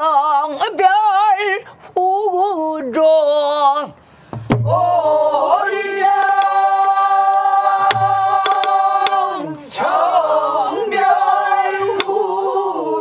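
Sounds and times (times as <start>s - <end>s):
barrel drum strokes: 4.3s - 5.0s, 7.8s - 9.2s
group singing in unison: 4.6s - 13.0s
stick clicks: 6.2s - 6.6s, 7.8s - 9.3s, 11.9s - 12.2s.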